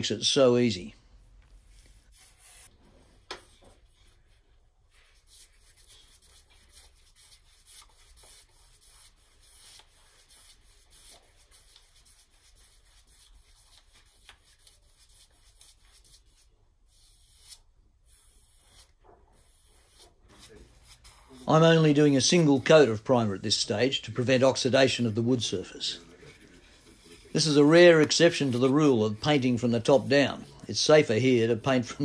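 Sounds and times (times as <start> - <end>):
paintbrush swishing on wood: 17.3 - 32.0.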